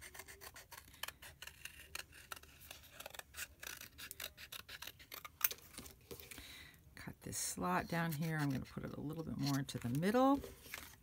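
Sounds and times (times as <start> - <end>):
scissors snipping cardboard: 0.0 - 5.8.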